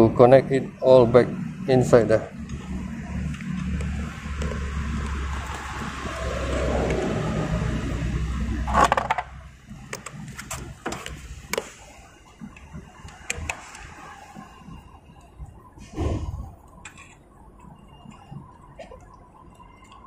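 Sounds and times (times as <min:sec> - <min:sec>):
low rumble: 0:02.4 - 0:09.8.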